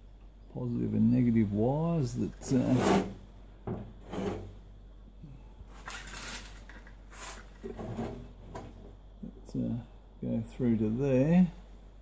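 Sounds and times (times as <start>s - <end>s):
low steady hum: 0.0s - 12.0s
hands handling engine parts: 5.7s - 8.8s.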